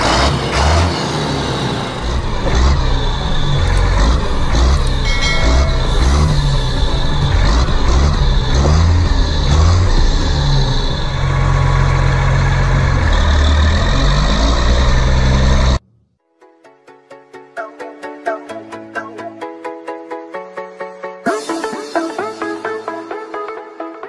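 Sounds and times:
tractor engine revving: 0.0s - 15.8s.

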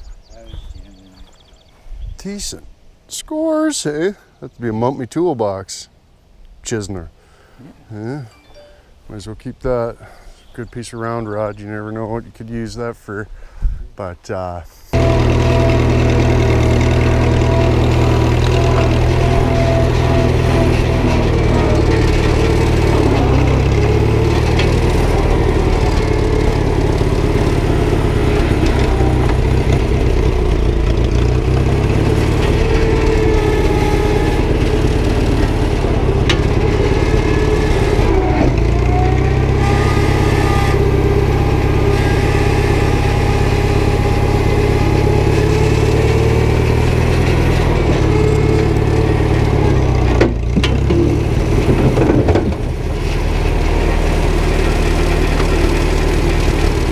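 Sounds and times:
high engine whine: 14.9s - 56.9s
tractor engine running: 14.9s - 56.9s.

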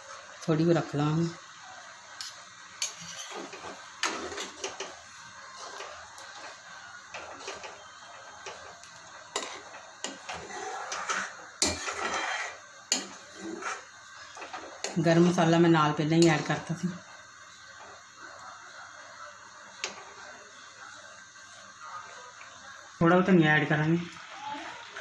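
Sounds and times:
spoon scraping steel bowl: 2.2s - 4.7s, 9.3s - 15.0s
ladle stirring thick gravy: 2.8s - 15.1s
utensils knocking on pan: 11.0s - 12.3s, 12.9s - 13.2s.

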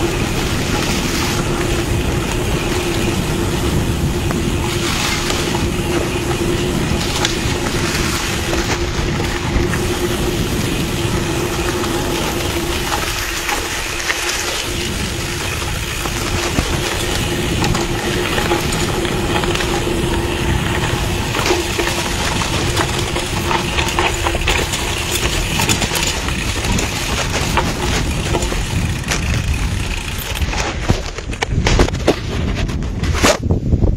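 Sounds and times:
tyres crunching over dirt and stones: 0.0s - 33.4s
bike rattling over bumps: 0.0s - 33.9s
rush of riding wind noise: 0.0s - 33.9s.

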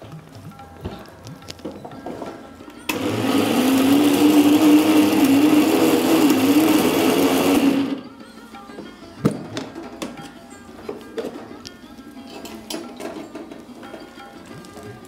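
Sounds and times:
mixer grinder running: 2.9s - 8.0s.

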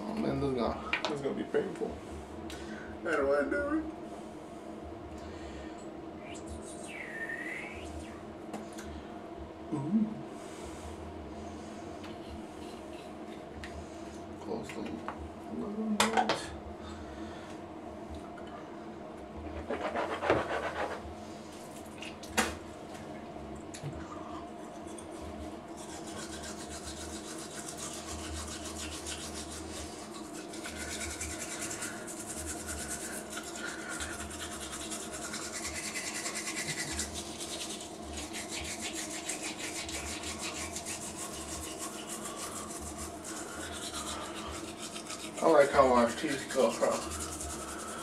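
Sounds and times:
toothbrush scrubbing teeth: 24.3s - 48.0s.

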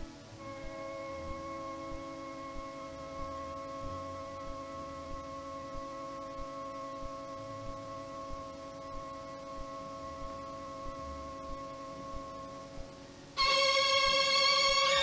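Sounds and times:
sustained orchestral note: 13.4s - 15.0s.

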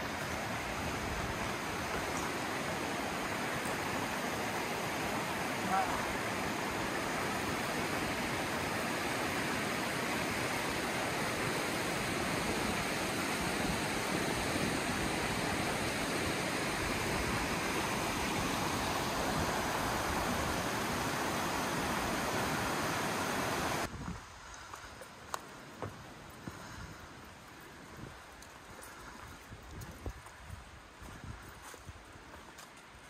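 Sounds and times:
creek rushing over rocks: 0.0s - 24.0s.

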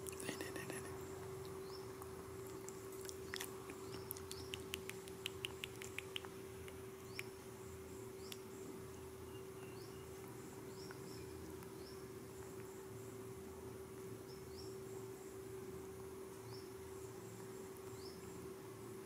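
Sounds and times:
low steady hum: 0.0s - 19.0s
small high chirps: 0.1s - 7.4s
sharp chirping clicks: 3.3s - 7.4s.

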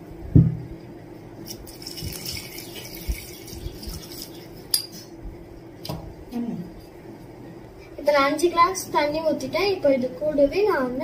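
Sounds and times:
water pouring and splashing: 1.5s - 4.6s
tumbler clinking against pot: 4.7s - 5.1s.

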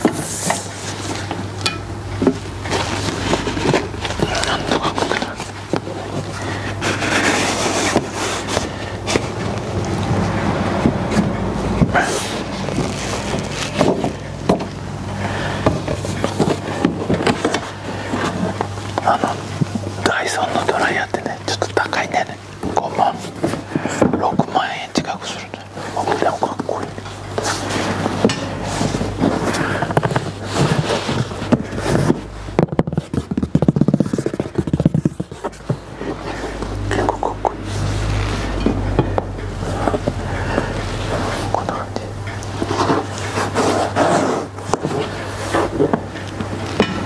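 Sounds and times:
steady low hum: 0.0s - 47.0s
cardboard box rubbing and scraping: 2.2s - 19.9s, 25.6s - 46.9s
cardboard box handled: 27.3s - 36.9s.

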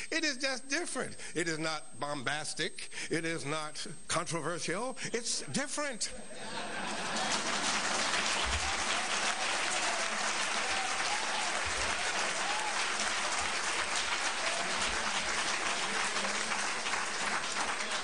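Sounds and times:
audience applause: 6.8s - 18.0s.

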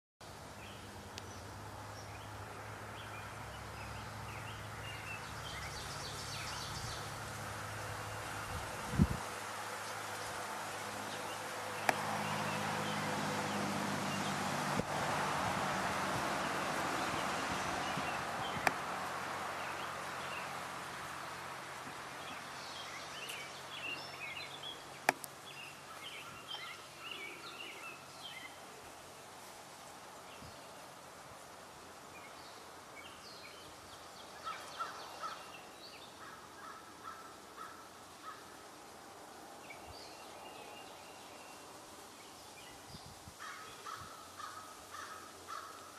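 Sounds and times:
birds chirping: 0.6s - 9.2s, 9.8s - 14.5s, 16.2s - 29.1s, 32.1s - 38.5s.

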